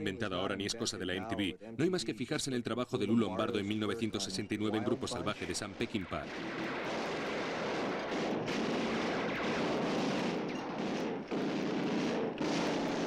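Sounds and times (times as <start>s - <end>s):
heavy machine gun rapid fire: 6.3s - 13.0s.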